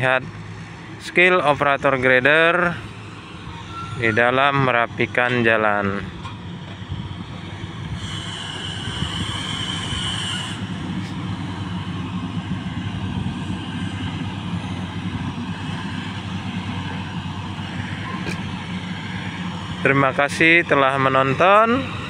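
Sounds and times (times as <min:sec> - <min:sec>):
diesel engine running: 0:00.0 - 0:22.0
high metallic squeal: 0:01.5 - 0:06.1, 0:07.8 - 0:11.7, 0:13.6 - 0:22.0.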